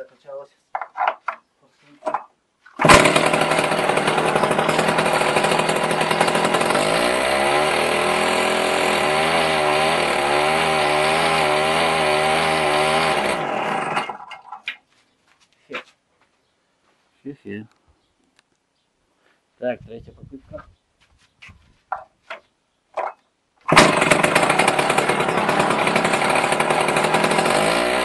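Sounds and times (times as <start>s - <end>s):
small starter engine revving: 2.8s - 14.3s, 23.7s - 28.0s
diesel engine cranking: 2.8s - 14.4s, 23.7s - 28.0s.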